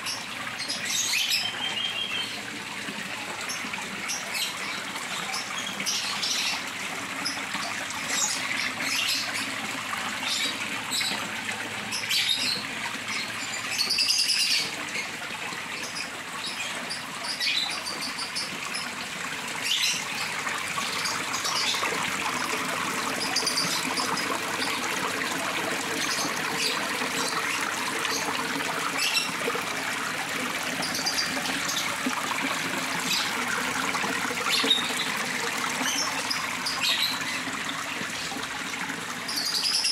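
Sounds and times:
water trickling down rocks: 0.0s - 39.9s
bird chirps: 1.2s - 2.4s.

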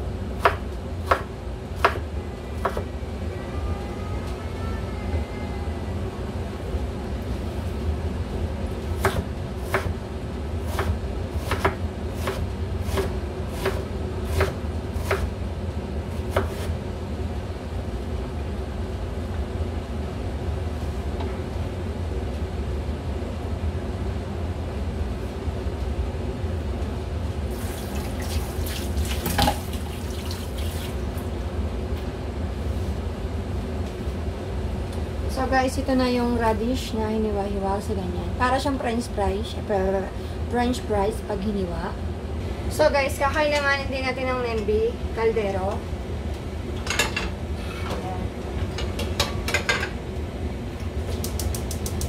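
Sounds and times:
knife chopping on wooden board: 9.0s - 9.9s, 10.7s - 15.3s, 16.3s - 16.7s
tap running into sink: 27.8s - 30.7s.

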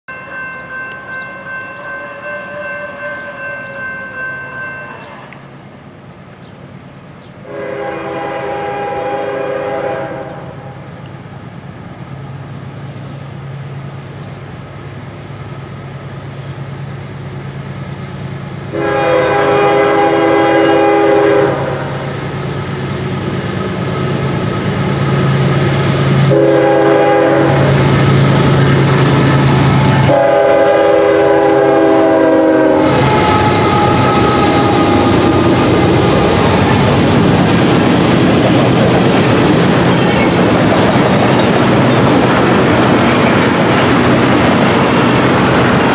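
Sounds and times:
pulsing ringing tone: 0.1s - 5.2s
locomotive horn blasts: 0.6s - 5.4s, 7.4s - 10.8s, 18.7s - 22.1s, 26.3s - 27.9s, 29.8s - 35.4s.

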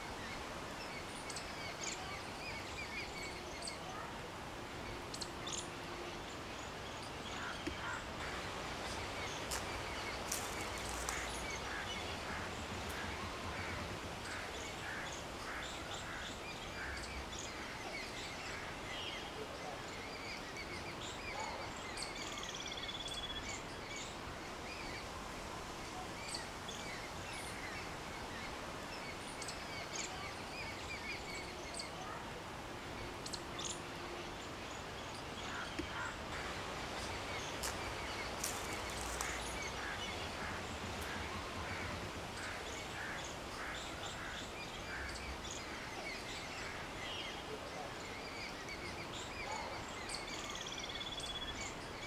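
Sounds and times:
steady background hiss: 0.0s - 52.0s.

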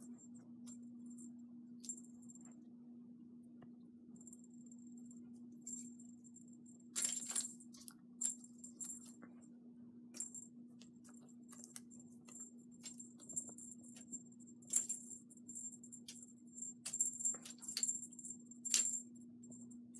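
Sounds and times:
small bell jingling: 4.2s - 9.2s, 10.2s - 19.8s.

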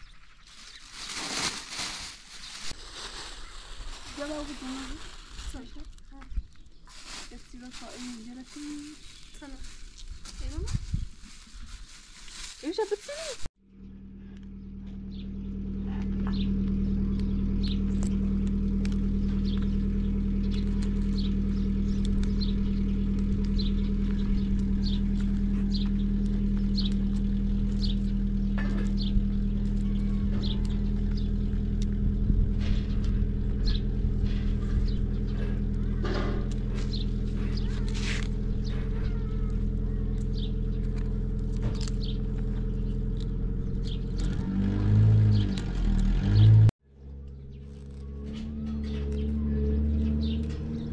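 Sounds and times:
steady low motor hum: 0.0s - 50.9s
cauliflower florets snapping: 16.0s - 33.3s, 34.2s - 46.4s.

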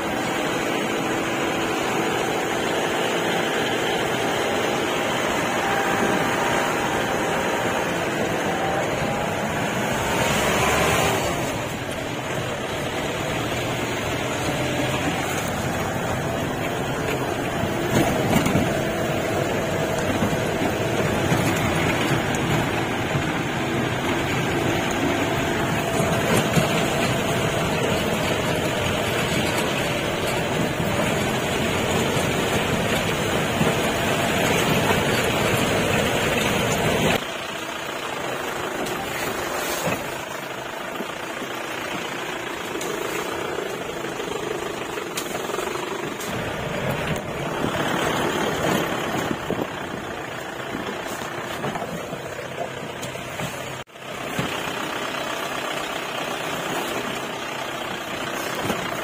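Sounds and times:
jeep engine running: 0.0s - 59.0s.

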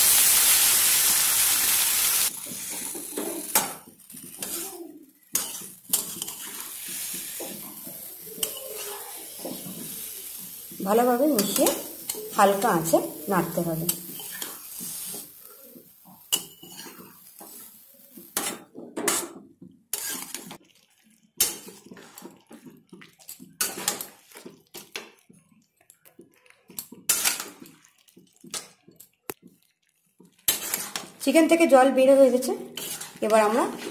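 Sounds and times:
metal spatula scraping a metal pan: 2.5s - 4.7s, 5.3s - 15.5s, 16.2s - 20.6s, 27.0s - 27.6s, 30.5s - 31.2s, 32.7s - 33.9s.

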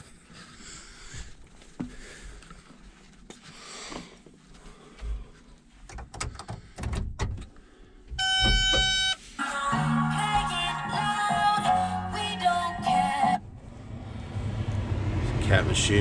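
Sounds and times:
knocks and clicks in cab: 5.8s - 9.1s
loud electronic beep: 8.2s - 9.2s.

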